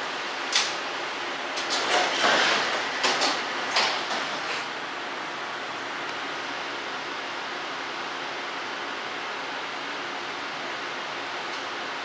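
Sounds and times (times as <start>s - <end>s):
steady background noise: 0.0s - 12.0s
train doors opening with clunks: 0.4s - 5.0s
sweeping door mechanism: 1.5s - 4.8s.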